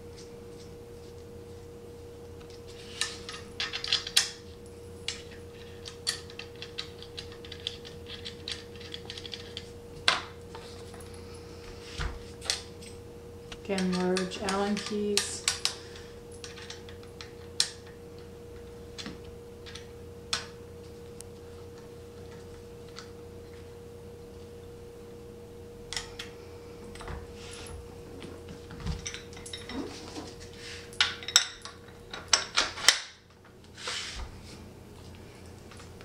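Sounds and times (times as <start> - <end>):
faint steady hum: 0.0 - 36.0
metal tools clinking on metal frame: 29.0 - 30.3.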